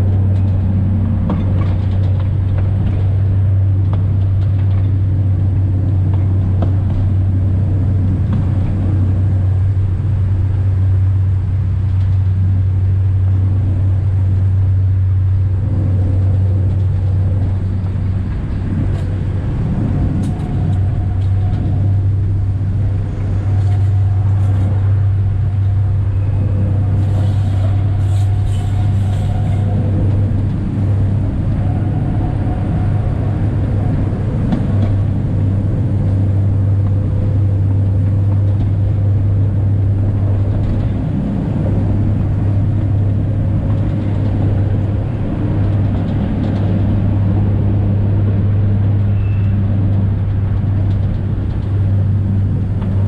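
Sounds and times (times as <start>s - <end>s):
diesel locomotive hum: 0.0s - 53.0s
faint whining tones: 6.9s - 47.3s, 48.0s - 53.0s
brief high squeaks: 49.1s - 49.6s.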